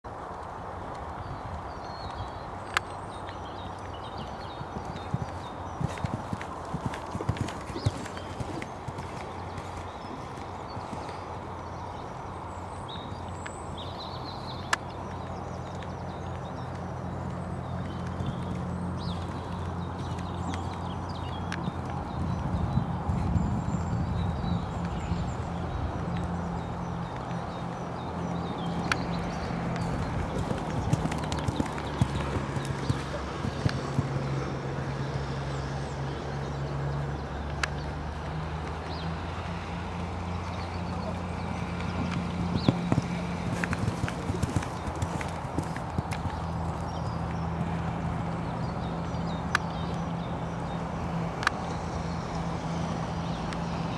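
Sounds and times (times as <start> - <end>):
small birds chirping: 1.1 - 53.9
hoofbeats on sand: 3.4 - 12.1, 15.0 - 25.3, 26.0 - 34.7, 38.3 - 50.8.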